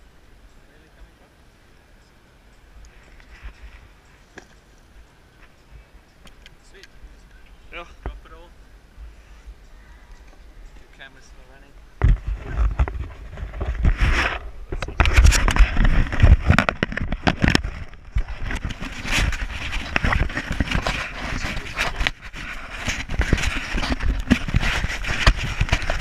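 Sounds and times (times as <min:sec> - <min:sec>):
camera handling rubbing and knocks: 0:12.0 - 0:26.0
wind buffeting microphone: 0:12.0 - 0:26.0.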